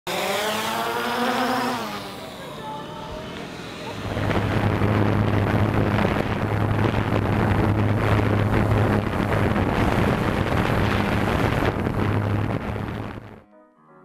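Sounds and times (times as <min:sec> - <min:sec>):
drone propellers humming: 0:00.1 - 0:13.4
wind noise: 0:03.0 - 0:13.4.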